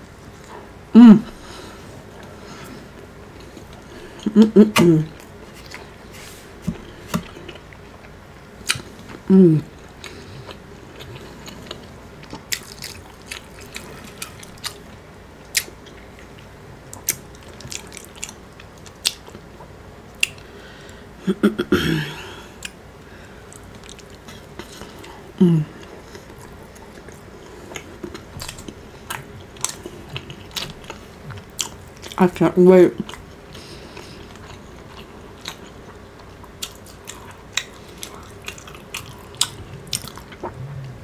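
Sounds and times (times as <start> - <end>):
chewing and biting: 10.0 - 19.4, 26.0 - 32.2, 33.0 - 40.6
short falling vocal sound: 40.5 - 41.0.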